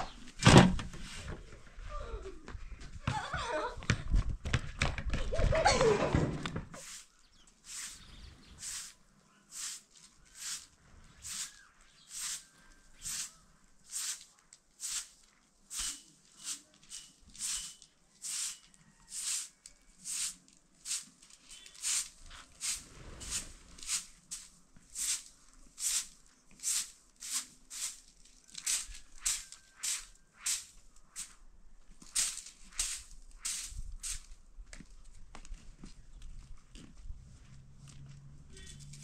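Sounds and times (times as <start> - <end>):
broom sweeping floor: 6.8 - 31.4, 32.0 - 34.3.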